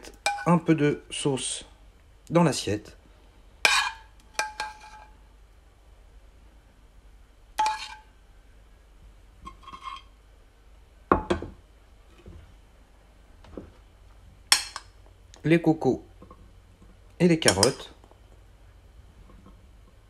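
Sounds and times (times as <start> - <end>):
metal spoon clinking on dishes: 0.1 - 0.6, 3.7 - 5.2, 7.6 - 8.1, 14.5 - 14.9, 17.4 - 17.9.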